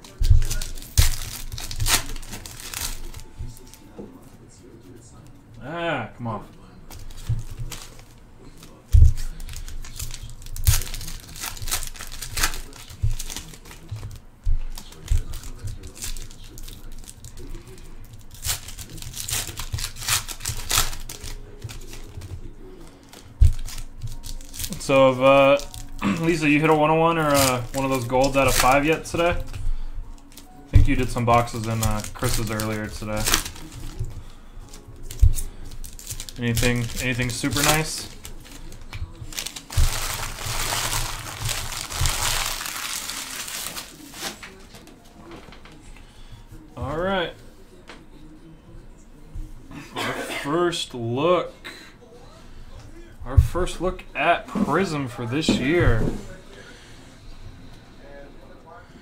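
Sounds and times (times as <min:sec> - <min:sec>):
foil crinkling rips: 0:00.0 - 0:03.8, 0:07.0 - 0:44.8
foil packs rustling: 0:00.0 - 0:04.3, 0:06.9 - 0:44.9.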